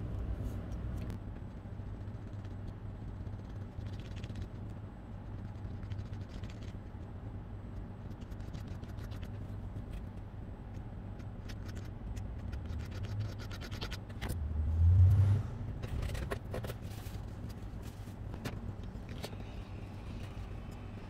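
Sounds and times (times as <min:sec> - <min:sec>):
steady low hum: 0:00.0 - 0:21.0
low rumble: 0:14.2 - 0:16.4.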